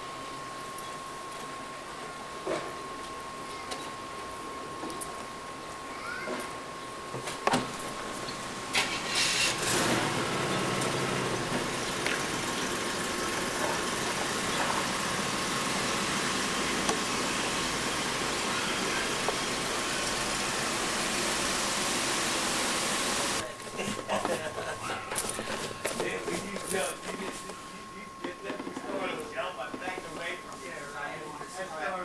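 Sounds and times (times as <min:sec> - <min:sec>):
steady hiss: 0:08.0 - 0:23.9
engine idling: 0:08.6 - 0:23.4.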